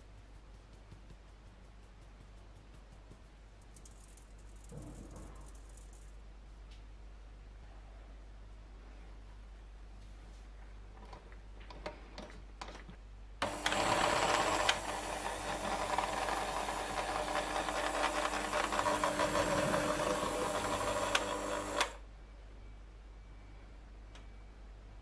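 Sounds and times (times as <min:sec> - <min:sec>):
electric hand mixer running: 0:13.4 - 0:22.0.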